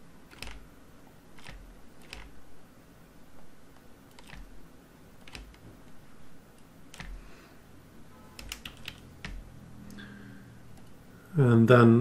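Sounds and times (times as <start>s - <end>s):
computer mouse and keyboard clicks: 0.3s - 0.7s, 1.3s - 2.4s, 3.7s - 4.6s, 5.2s - 6.0s, 6.6s - 7.2s, 8.3s - 10.0s, 10.7s - 11.0s.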